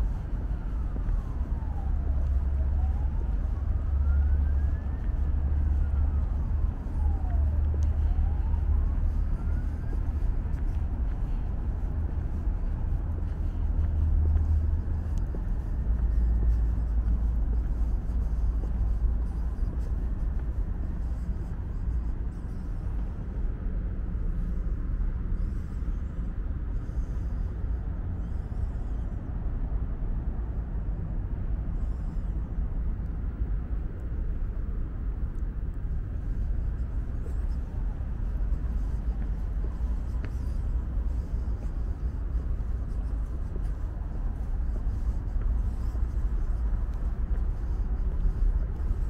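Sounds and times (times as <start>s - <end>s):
low rumble: 0.0s - 49.0s
siren wailing: 0.1s - 10.9s.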